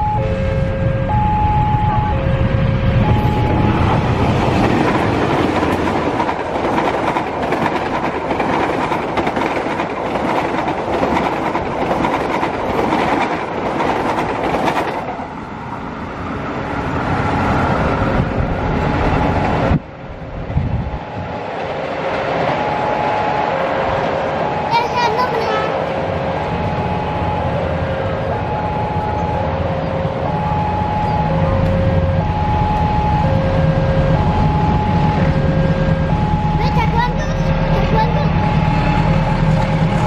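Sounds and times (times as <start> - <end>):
two-tone crossing alarm: 0.0 - 8.5, 22.4 - 40.0
locomotive engine: 0.0 - 40.0
train wheels clattering: 3.4 - 15.3.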